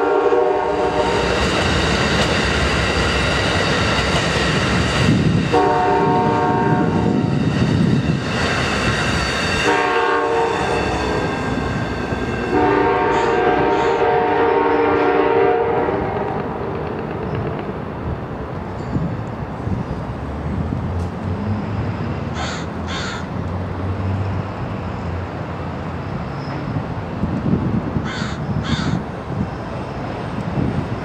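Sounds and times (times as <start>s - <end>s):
locomotive air horn: 0.0s - 1.4s, 5.5s - 7.2s, 9.6s - 11.6s, 12.4s - 16.2s
train rumbling: 0.0s - 31.0s
crow cawing: 22.4s - 23.3s, 28.0s - 29.0s.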